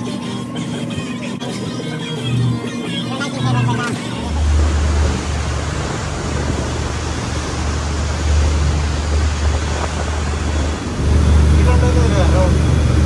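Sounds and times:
boat engine rumble: 0:00.0 - 0:13.0
wind and water rushing: 0:04.0 - 0:13.0.

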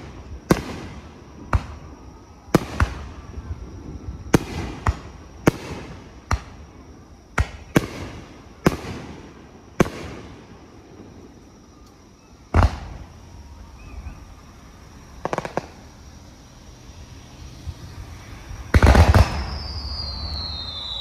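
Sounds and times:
firework shells bursting: 0:18.6 - 0:21.0.

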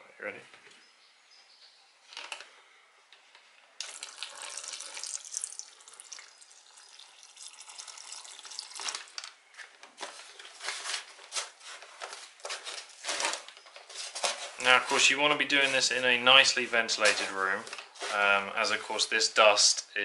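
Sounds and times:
water pouring onto powder: 0:03.8 - 0:09.2
plastic shovel stirring wet clay: 0:10.0 - 0:18.4.

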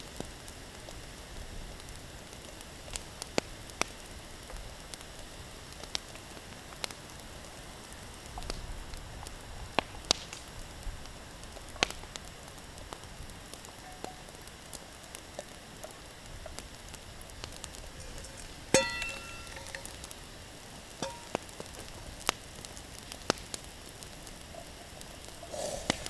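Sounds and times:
fire crackling and popping: 0:00.0 - 0:26.0
steady hiss: 0:00.0 - 0:26.0
utensil clinking in metal bowl: 0:18.2 - 0:20.0, 0:21.0 - 0:21.3.

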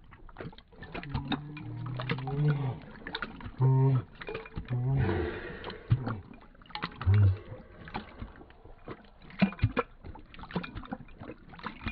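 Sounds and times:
dog lapping water: 0:00.0 - 0:11.9
low hum: 0:03.6 - 0:09.4.

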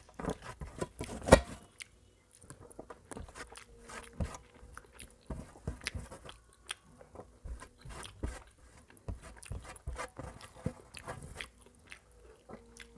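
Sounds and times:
chewing mouth clicks: 0:10.9 - 0:12.9.

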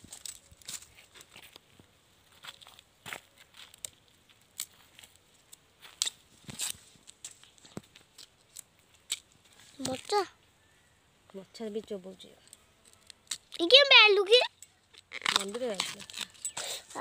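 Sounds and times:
bamboo sheaths tearing and snapping: 0:03.6 - 0:10.2, 0:12.4 - 0:13.8, 0:14.8 - 0:17.0.

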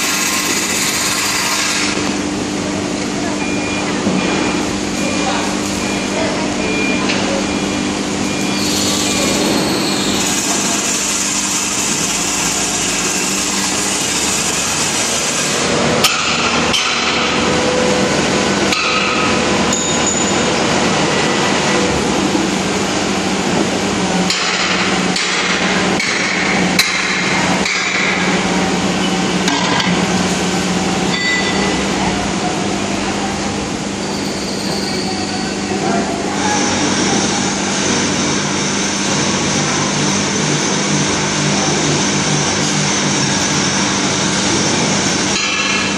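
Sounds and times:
machinery hum: 0:00.0 - 0:45.9
sharp metallic knocks: 0:16.0 - 0:17.4.

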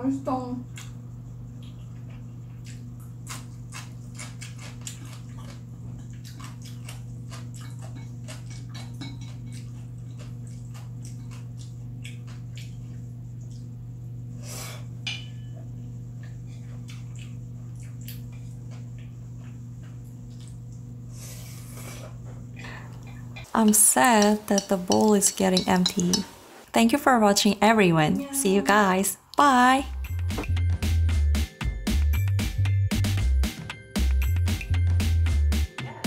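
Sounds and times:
steady low hum: 0:00.0 - 0:31.4
person chewing noodles: 0:01.6 - 0:13.9, 0:16.2 - 0:25.0
chopsticks clicking on bowl: 0:23.0 - 0:26.3.

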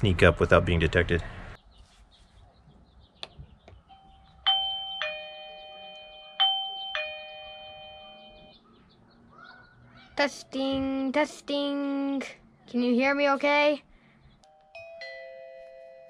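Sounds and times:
two-note doorbell chime: 0:03.9 - 0:08.6, 0:14.4 - 0:16.0.

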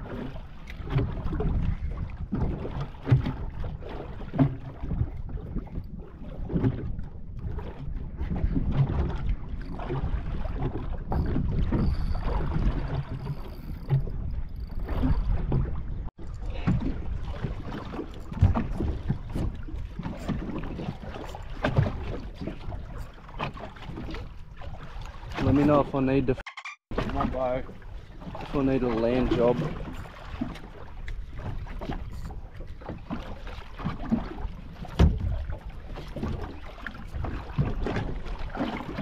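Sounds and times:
water slapping boat hull: 0:00.0 - 0:39.0
wind buffeting microphone: 0:00.7 - 0:03.8.

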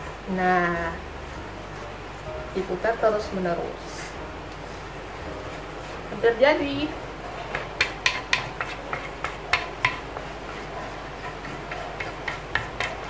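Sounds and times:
stirrer knocking and scraping bowl: 0:04.5 - 0:13.0.

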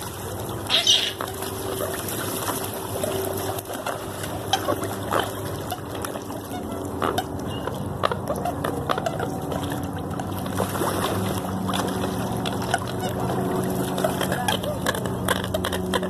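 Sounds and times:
birds splashing on water: 0:00.0 - 0:16.0
steady low hum: 0:00.0 - 0:16.0
birds calling: 0:00.6 - 0:01.4, 0:04.5 - 0:09.4
short sharp calls and clicks: 0:00.7 - 0:01.2.

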